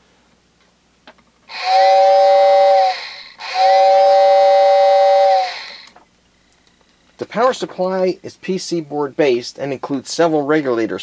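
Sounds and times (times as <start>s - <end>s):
two-note whistle blowing: 1.5s - 5.9s.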